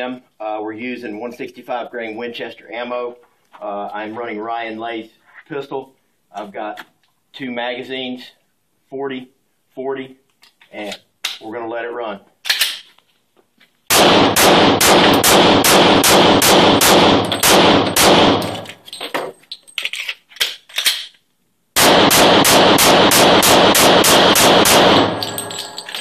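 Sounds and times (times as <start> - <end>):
pistol shots in rapid strings: 13.9 - 18.6, 21.8 - 25.5.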